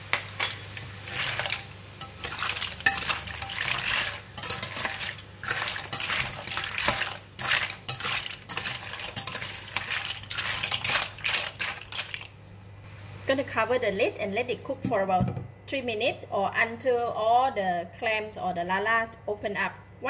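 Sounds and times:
clam shells clattering in a wok: 0.3 - 12.3
spatula scraping a wok: 0.4 - 12.2.

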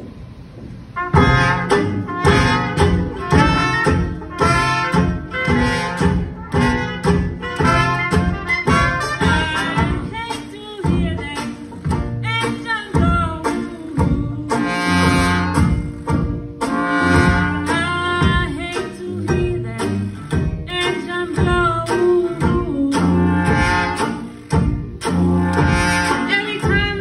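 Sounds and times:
tuba bass: 0.9 - 10.2, 13.1 - 20.8, 21.5 - 27.0
clarinet: 1.0 - 9.8, 25.1 - 26.7
trombone: 1.0 - 10.1, 14.6 - 18.3, 23.1 - 26.7
steady drum beat: 1.0 - 27.0.

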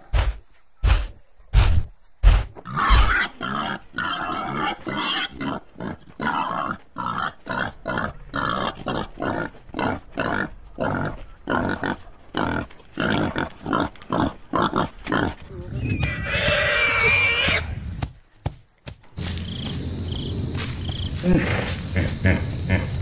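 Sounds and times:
wild boar grunting: 2.6 - 16.8.

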